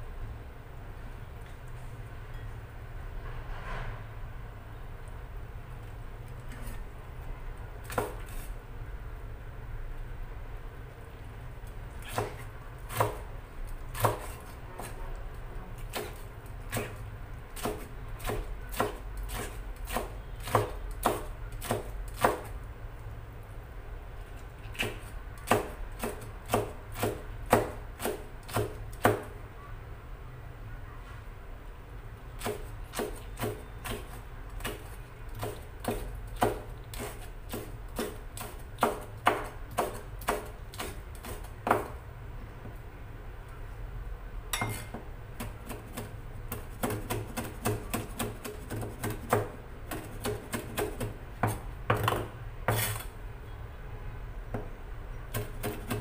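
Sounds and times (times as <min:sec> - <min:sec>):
knife chopping on cutting board: 0:07.9 - 0:08.5, 0:12.0 - 0:13.3, 0:13.9 - 0:15.0, 0:17.6 - 0:22.5, 0:24.8 - 0:29.3, 0:32.4 - 0:42.0, 0:44.6 - 0:53.0.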